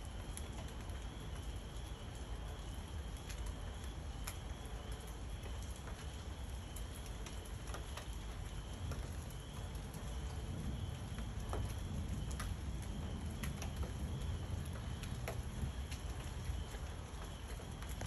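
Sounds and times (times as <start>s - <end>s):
sharp drips and patters: 0.0s - 18.0s
steady rain: 0.0s - 18.0s
low thunder rumble: 8.7s - 17.8s.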